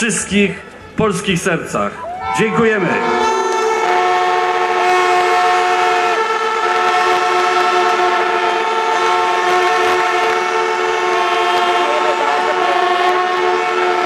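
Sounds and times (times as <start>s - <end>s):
crowd cheering: 1.8s - 14.0s
fans blowing horns: 1.9s - 14.0s.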